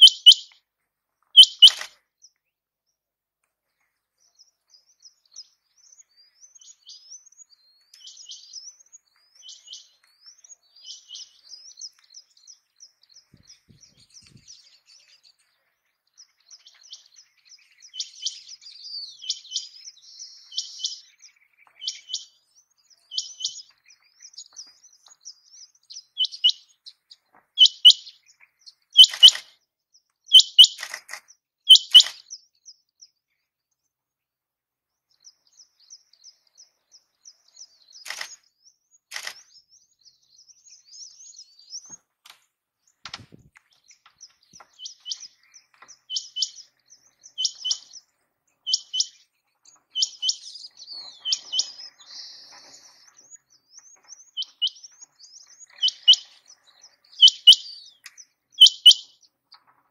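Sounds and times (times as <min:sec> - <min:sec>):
quail calling: 0:00.0 - 0:00.5, 0:01.4 - 0:01.9, 0:27.6 - 0:28.1, 0:29.0 - 0:29.4, 0:30.3 - 0:30.8, 0:31.7 - 0:32.2, 0:54.4 - 0:54.8, 0:55.8 - 0:56.3, 0:57.2 - 0:57.8, 0:58.6 - 0:59.1.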